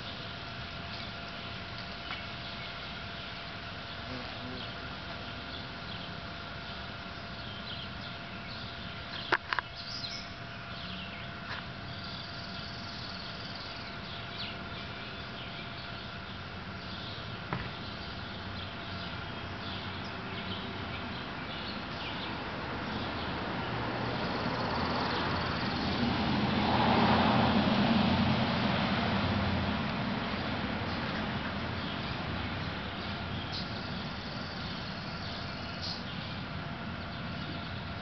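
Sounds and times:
small birds chirping: 0:00.0 - 0:26.0, 0:30.8 - 0:38.0
car passing: 0:23.3 - 0:33.0.

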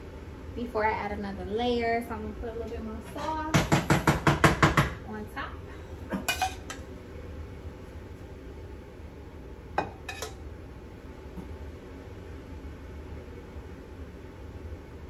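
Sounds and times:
low background hum: 0:00.0 - 0:15.0
utensil clinking on dishes: 0:06.2 - 0:06.8, 0:09.8 - 0:10.4.

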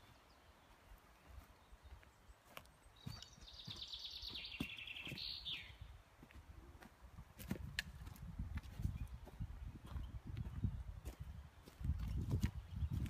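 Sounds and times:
songbird trill: 0:00.0 - 0:06.0.

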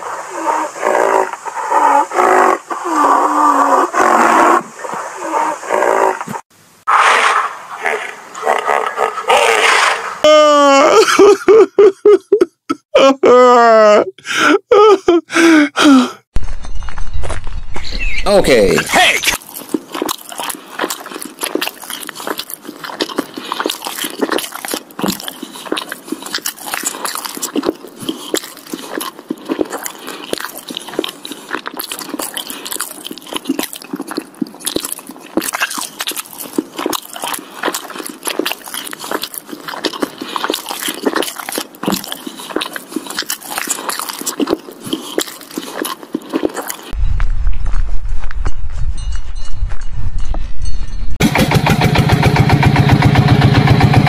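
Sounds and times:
crunchy chewing and biting: 0:18.9 - 0:48.8.

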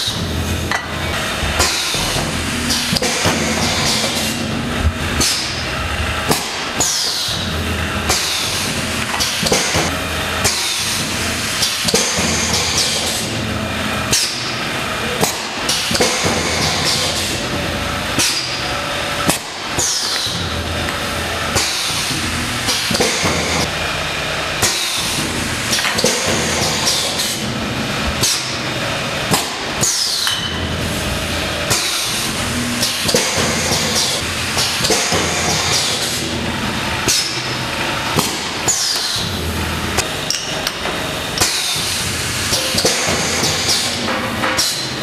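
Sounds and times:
machine metallic clunks: 0:00.0 - 0:13.3
mechanical hum: 0:00.0 - 0:45.0.

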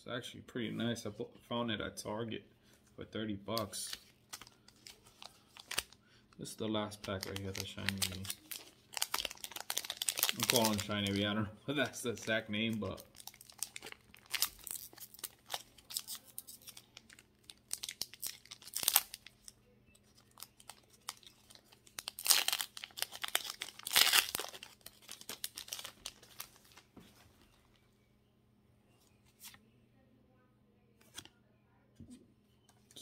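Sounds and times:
foil wrapper ripping and crinkling: 0:03.8 - 0:06.0, 0:07.0 - 0:11.2, 0:12.0 - 0:19.5, 0:20.1 - 0:26.8.

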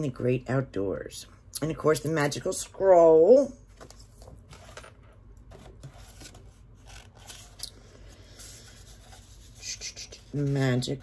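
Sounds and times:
paper and cardboard rustling: 0:03.7 - 0:11.0.

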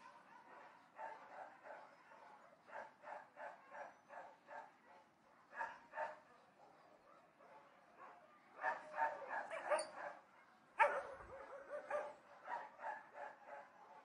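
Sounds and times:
distant dogs barking: 0:08.6 - 0:14.0.

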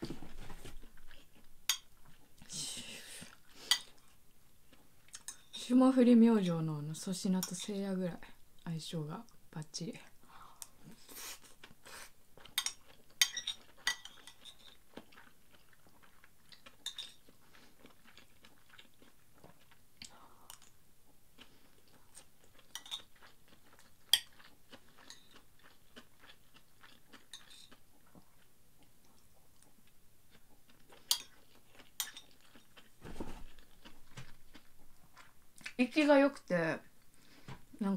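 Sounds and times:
person chewing: 0:03.2 - 0:05.5, 0:10.6 - 0:35.8.

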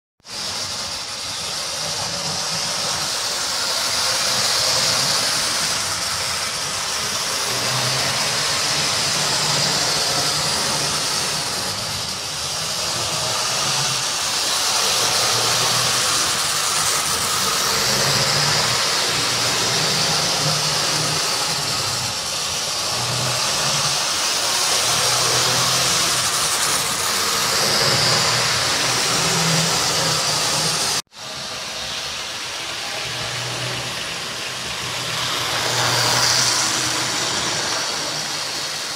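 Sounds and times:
train wheels rattling over rails: 0:00.2 - 0:38.9
model train motor whirring: 0:00.3 - 0:38.9.

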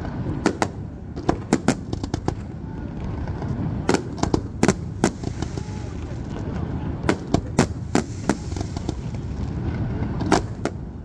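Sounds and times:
steady low rumble: 0:00.0 - 0:11.0
fireworks shells bursting: 0:07.1 - 0:09.3.

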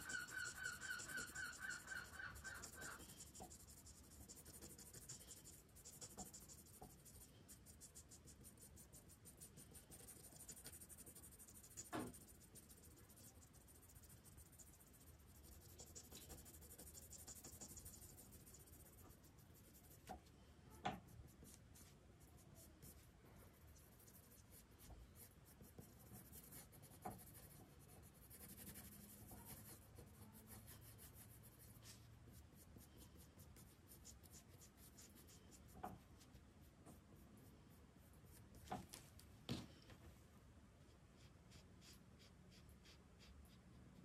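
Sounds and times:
pencil scratching on paper: 0:00.0 - 0:20.3, 0:20.9 - 0:39.0, 0:40.9 - 0:44.0.

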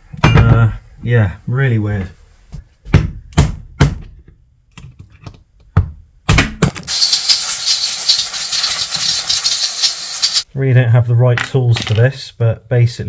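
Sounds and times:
steady hiss: 0:06.9 - 0:10.5.

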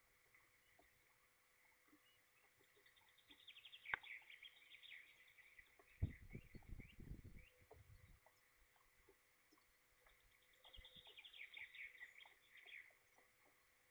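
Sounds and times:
low dull thumps: 0:06.0 - 0:08.1.

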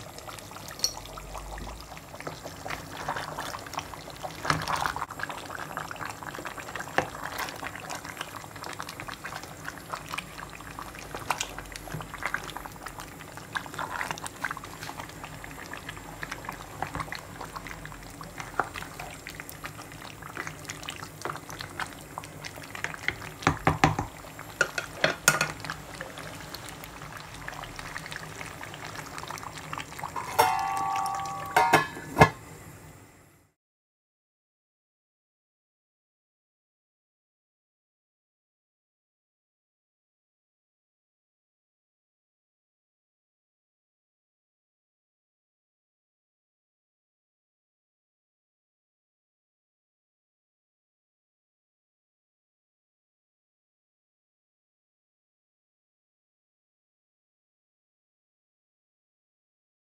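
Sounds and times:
curry sizzling and bubbling in pot: 0:00.0 - 0:33.2
brief tone: 0:30.4 - 0:31.7.

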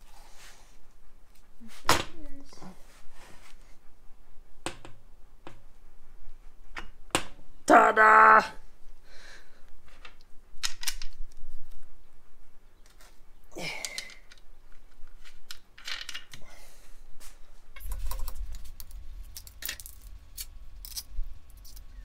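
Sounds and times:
steel parts clicking and knocking: 0:10.1 - 0:11.4, 0:13.8 - 0:16.4, 0:17.8 - 0:22.0
low rumble: 0:17.8 - 0:22.0.

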